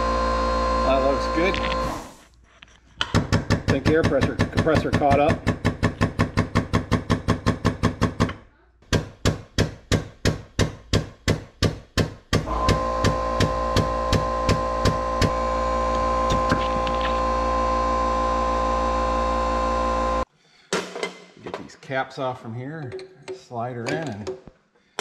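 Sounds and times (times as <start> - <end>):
steady hum: 0.0 - 2.2, 12.5 - 20.3.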